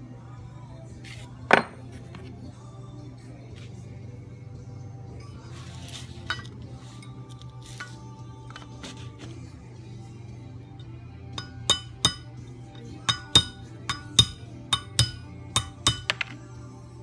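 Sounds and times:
hammer tapping metal punch: 0:11.3 - 0:16.4.

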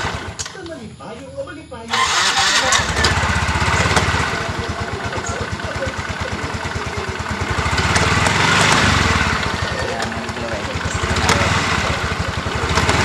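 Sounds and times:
scooter engine idling: 0:00.0 - 0:00.6, 0:01.9 - 0:13.0
transmission gear noise: 0:01.9 - 0:13.0.

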